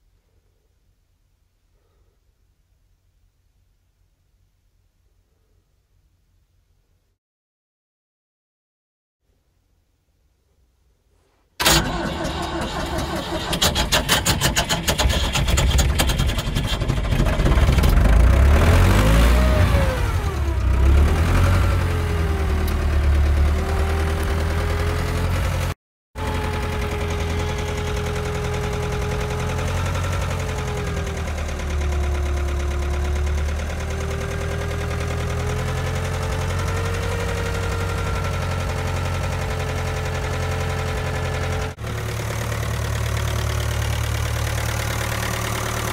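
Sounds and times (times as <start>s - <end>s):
diesel engine cranking and starting: 11.6s - 45.9s
diesel engine revving: 11.6s - 45.9s
diesel engine idling: 26.2s - 45.9s.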